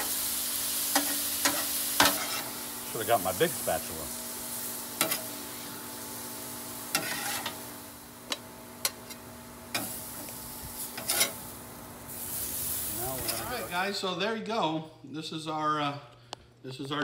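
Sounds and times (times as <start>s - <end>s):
food sizzling on griddle: 0.0s - 13.9s
metal spatula scraping griddle: 0.9s - 2.6s, 5.0s - 5.3s, 6.9s - 7.7s, 10.8s - 11.5s, 12.1s - 13.7s.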